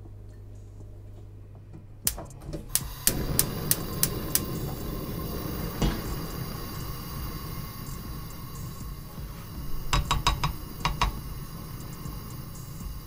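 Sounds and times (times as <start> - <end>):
gas stove igniter clicking: 2.0 - 13.0
burner flame rushing: 2.1 - 13.0
knock: 9.9 - 11.2.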